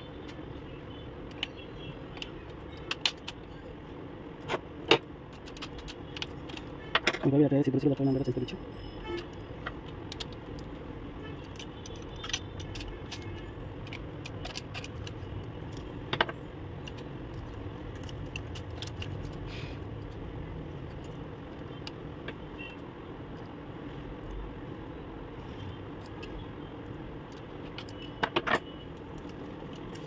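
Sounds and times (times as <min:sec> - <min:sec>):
plastic clicks and rattles: 0:04.4 - 0:07.3, 0:11.4 - 0:19.4.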